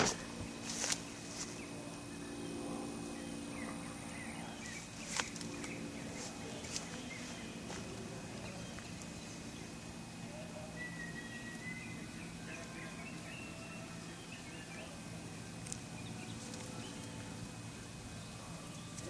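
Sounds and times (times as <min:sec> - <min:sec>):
steady low hum: 0:00.0 - 0:19.0
faint bird chirps: 0:08.4 - 0:19.0.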